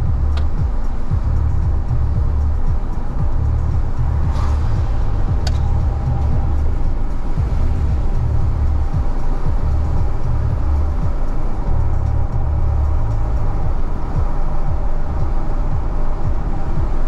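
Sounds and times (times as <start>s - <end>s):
road and engine rumble: 0.0s - 17.0s
tyres hissing on wet road: 0.0s - 17.0s
sharp click: 5.4s - 5.7s.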